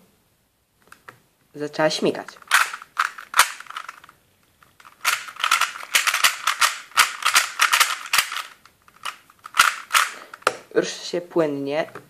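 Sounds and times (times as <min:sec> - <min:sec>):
puzzle cube plastic clicks: 0:02.3 - 0:10.7.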